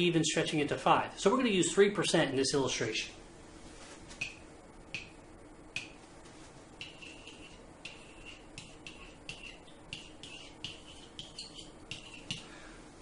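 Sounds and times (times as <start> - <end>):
stylus tapping on whiteboard: 4.2 - 5.2
stylus writing strokes: 6.8 - 12.5.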